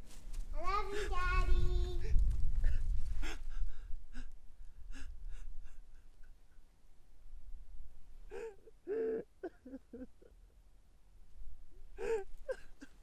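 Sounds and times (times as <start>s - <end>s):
man gasping for breath: 2.6s - 6.0s.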